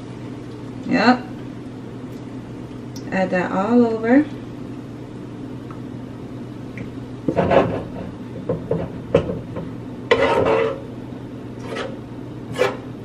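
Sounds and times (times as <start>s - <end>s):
utensil scraping a pan: 7.3s - 8.0s, 10.1s - 10.9s, 11.6s - 12.9s.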